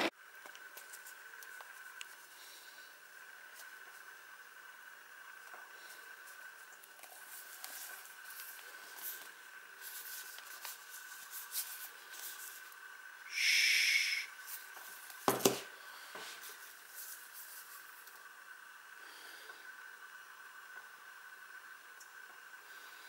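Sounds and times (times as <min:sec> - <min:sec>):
object knocking on table: 0:15.3 - 0:15.6.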